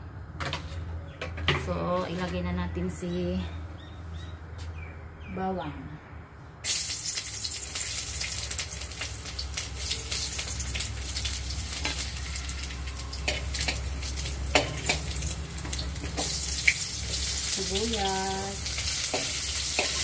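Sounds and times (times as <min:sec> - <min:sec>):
garlic sizzling in hot oil: 0:06.6 - 0:20.0
spoon stirring and knocking pot: 0:19.1 - 0:20.0.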